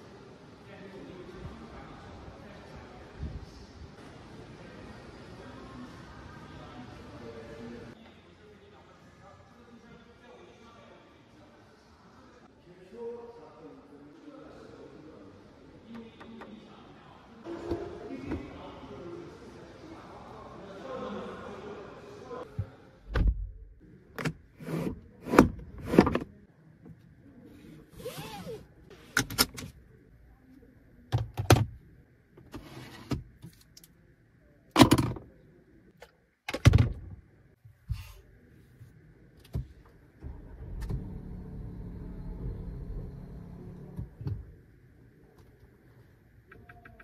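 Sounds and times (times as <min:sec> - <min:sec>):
steady low hum: 0:37.4 - 0:46.5.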